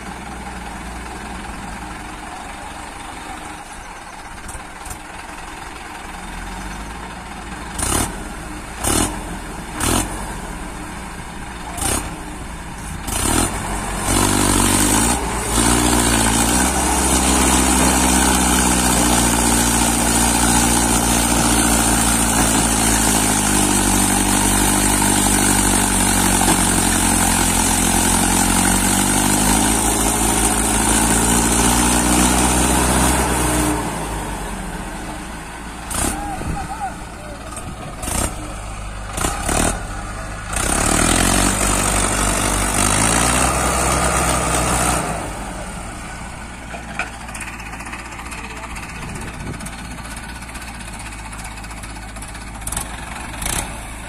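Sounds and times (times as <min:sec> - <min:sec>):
tractor engine revving hard: 0:04.4 - 0:54.0.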